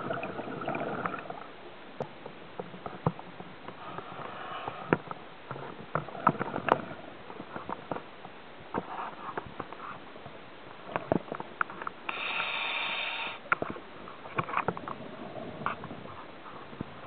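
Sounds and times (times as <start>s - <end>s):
underwater clicks and knocks: 2.0s - 3.8s, 4.9s - 9.7s, 10.9s - 12.0s, 13.5s - 15.0s
breath through scuba regulator: 12.1s - 13.4s.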